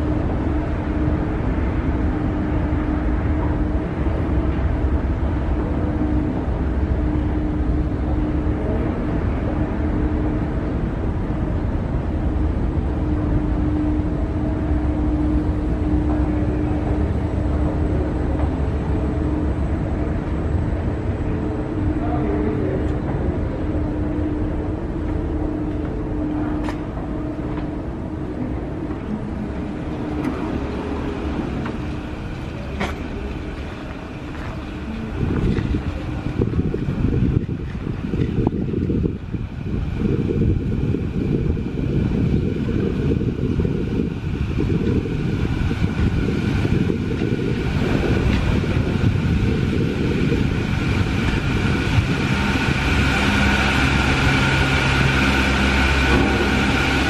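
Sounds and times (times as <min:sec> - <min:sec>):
escalator machinery hum: 0:00.0 - 0:57.0.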